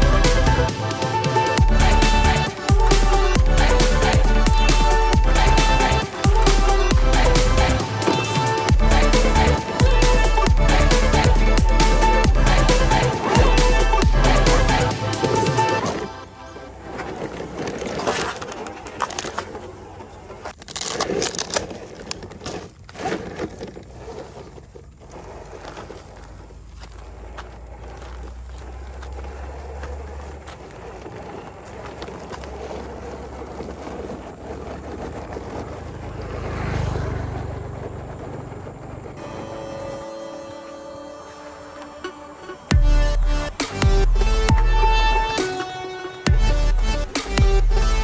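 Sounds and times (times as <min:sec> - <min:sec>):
tyres crunching on gravel: 0:00.0 - 0:48.0
stones knocking and clattering: 0:17.2 - 0:24.9.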